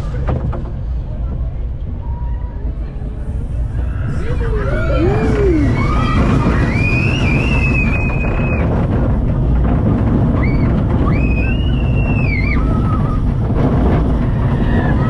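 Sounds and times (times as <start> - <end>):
roller coaster rumble: 0.0 - 15.0
wind on microphone: 0.0 - 15.0
riders screaming: 3.6 - 8.8, 10.4 - 13.4, 14.2 - 15.0.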